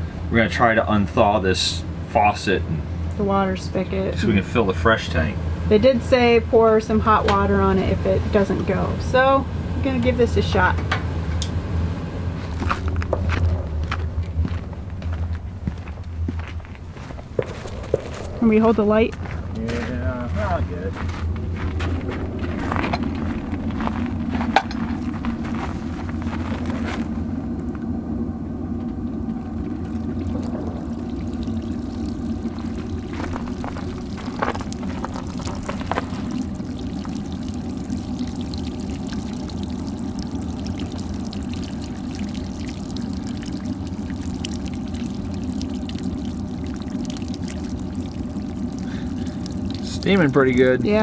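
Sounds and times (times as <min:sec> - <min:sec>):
vehicle engine idling: 0:00.0 - 0:51.0
footsteps crunching in snow: 0:12.4 - 0:18.4, 0:19.1 - 0:27.3
water splashing on ground: 0:16.4 - 0:27.2, 0:29.3 - 0:51.0
water pouring onto metal: 0:29.1 - 0:51.0.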